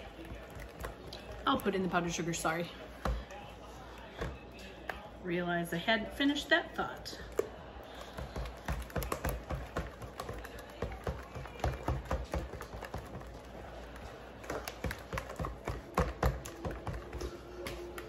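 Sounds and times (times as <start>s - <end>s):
spatula tapping plastic bowl: 0.0s - 1.9s, 7.3s - 18.0s.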